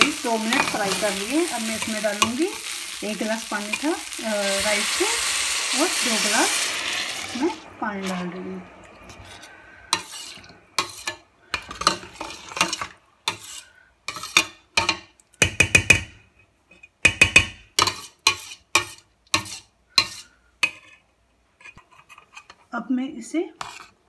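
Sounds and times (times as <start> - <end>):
metal ladle scraping steel pot: 0.4 - 14.5.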